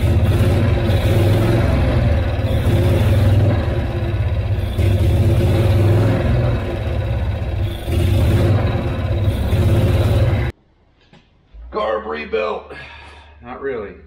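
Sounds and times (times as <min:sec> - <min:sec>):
small engine revving: 0:00.0 - 0:10.5.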